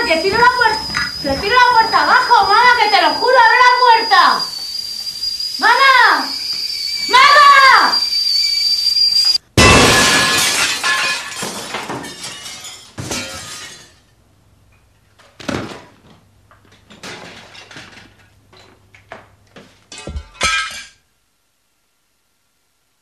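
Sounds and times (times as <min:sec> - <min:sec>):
glass pieces clattering: 0:09.6 - 0:14.0, 0:19.9 - 0:21.0
glass shattering: 0:09.6 - 0:14.0, 0:19.9 - 0:21.0.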